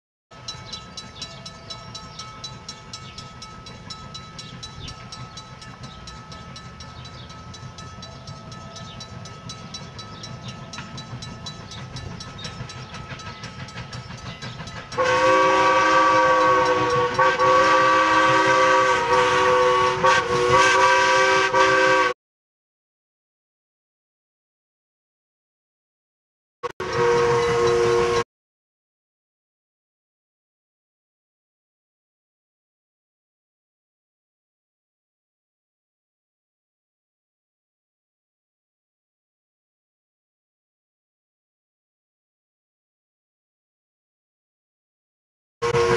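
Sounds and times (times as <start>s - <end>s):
steam locomotive chugging: 0.3s - 22.2s, 26.6s - 28.2s, 45.6s - 45.9s
steam whistle chord: 15.0s - 22.2s, 26.7s - 28.2s, 45.6s - 45.9s.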